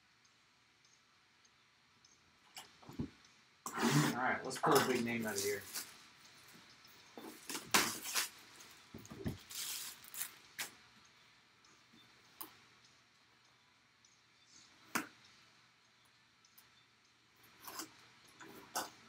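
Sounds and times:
plastic wrap rustling: 7.3 - 10.7.

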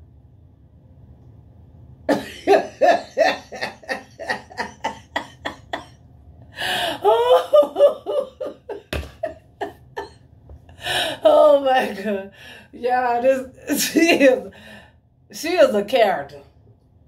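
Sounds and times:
woman laughing hard: 2.1 - 5.9, 6.6 - 10.2.

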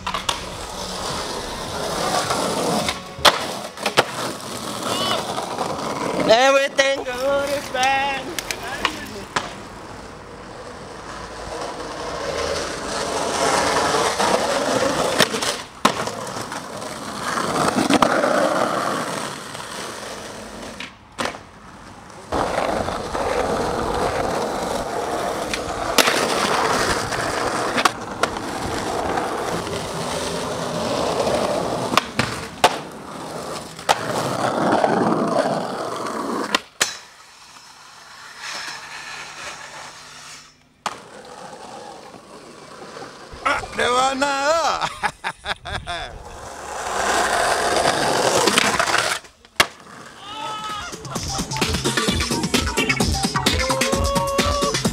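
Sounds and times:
skateboard pops and slaps: 0.0 - 0.6, 2.8 - 4.9, 7.8 - 9.6, 15.1 - 16.6, 20.7 - 21.5, 25.4 - 28.4, 31.9 - 33.0, 33.7 - 34.2, 36.4 - 37.2, 48.3 - 50.0
skateboard wheels rolling on asphalt: 0.0 - 52.6.

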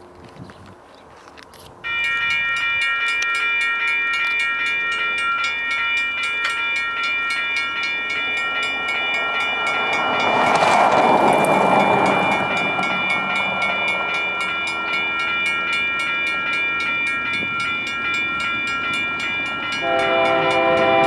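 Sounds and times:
approaching freight train: 0.0 - 21.0
crossing bell dinging: 1.8 - 21.0.

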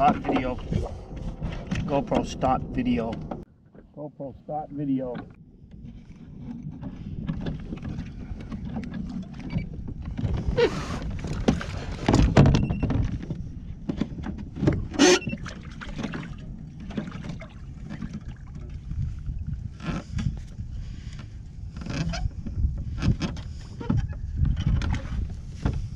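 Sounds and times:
steady low rumble: 0.0 - 11.7
rustling and knocks on kayak hull: 5.1 - 25.9
sharp bumps on hull: 21.9 - 25.9.

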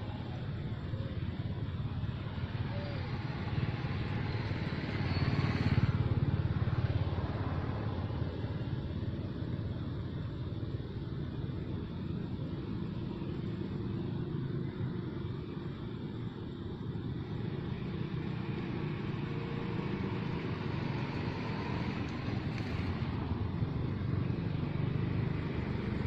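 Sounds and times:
motor vehicle passing: 2.4 - 8.1.

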